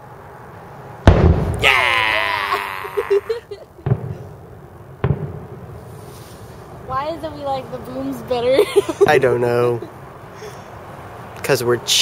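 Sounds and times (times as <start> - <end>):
firework shells booming: 1.0 - 1.8, 3.8 - 6.0.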